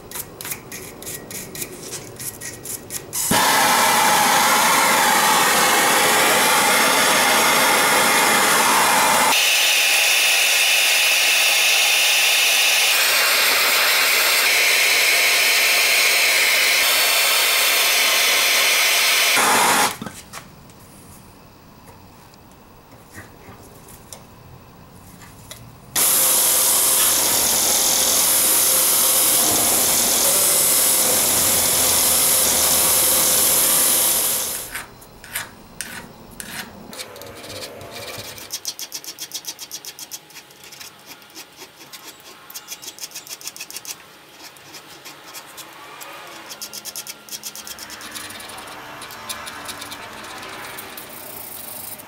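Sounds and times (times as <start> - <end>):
file scraping metal screw head: 0.1 - 3.1, 34.7 - 52.0
loud steady machine noise: 3.3 - 20.0, 26.0 - 34.7, 45.7 - 52.0.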